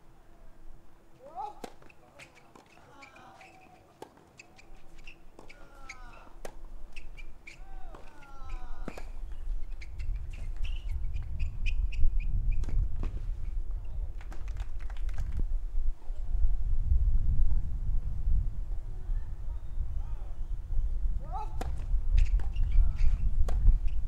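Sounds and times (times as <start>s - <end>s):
tennis rackets hitting ball: 1.2s - 11.2s, 21.6s - 22.6s
birds chirping: 2.0s - 12.1s.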